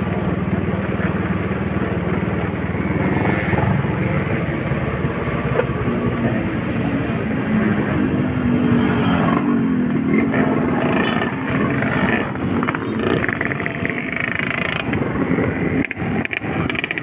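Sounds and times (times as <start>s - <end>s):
motorcycle passing: 0.0s - 17.0s
motorcycle engine running: 9.2s - 17.0s.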